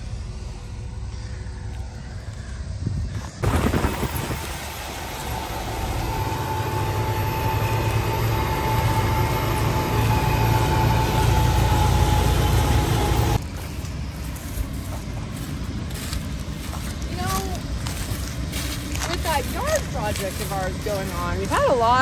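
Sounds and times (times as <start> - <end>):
open-air background: 0.0 - 22.0
thin whine: 0.0 - 22.0
tractor engine drone: 0.0 - 22.0.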